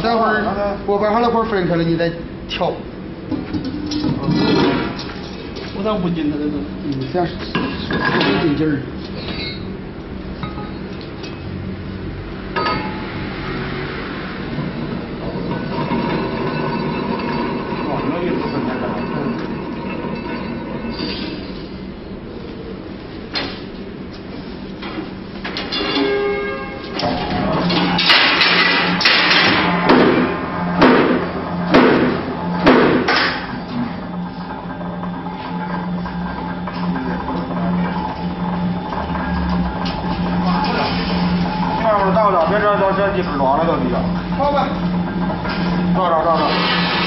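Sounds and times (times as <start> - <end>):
low mechanical hum: 0.0 - 47.0
hammer striking metal: 12.5 - 13.6, 25.6 - 33.6.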